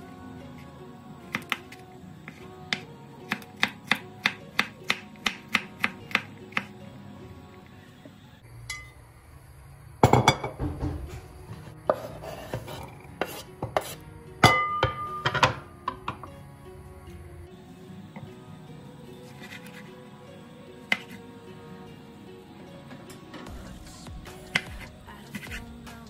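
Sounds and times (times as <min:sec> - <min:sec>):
knife chopping on cutting board: 0:02.3 - 0:06.7, 0:11.9 - 0:14.0
metallic knife clink: 0:08.7 - 0:09.0
frying pan knocks and clatter: 0:10.0 - 0:11.1.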